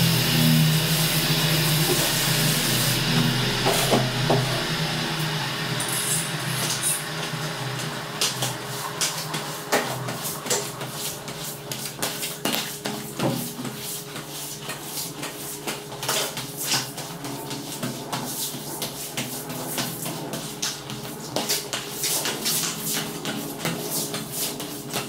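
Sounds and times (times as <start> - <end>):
low machine hum: 0.0 - 13.2.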